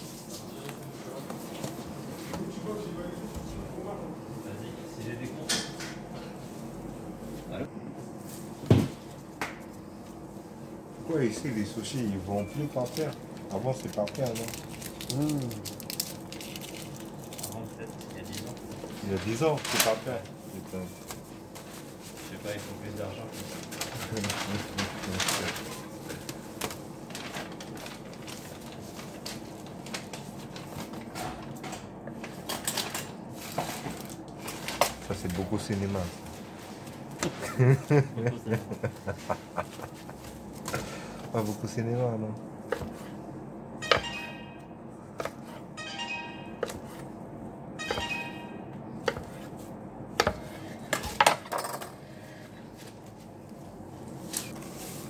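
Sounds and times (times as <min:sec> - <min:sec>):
kitchen background noise: 0:00.0 - 0:55.0
dishes and utensils clinking: 0:43.8 - 0:44.7, 0:47.8 - 0:48.6.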